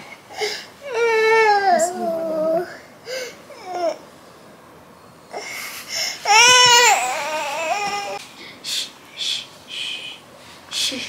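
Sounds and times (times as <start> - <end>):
newborn baby crying: 5.3 - 8.2.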